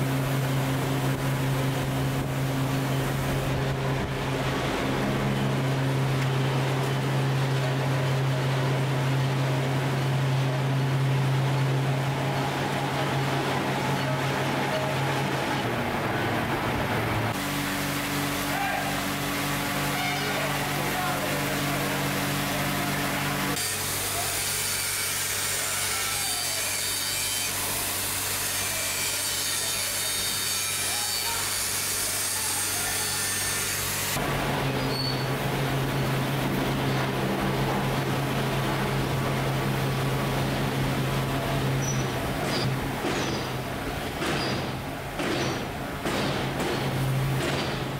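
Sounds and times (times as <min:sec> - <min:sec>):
large industrial fans: 0:00.0 - 0:47.9
angle grinder grinding metal: 0:23.5 - 0:34.2.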